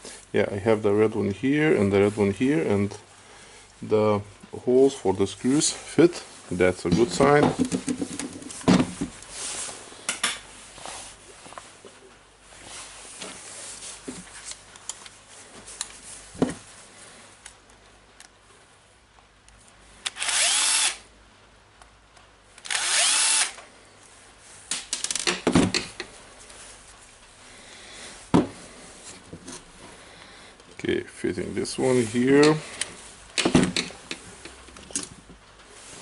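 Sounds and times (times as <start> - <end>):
cordless drill motor whine: 20.1 - 21.0, 22.6 - 23.6.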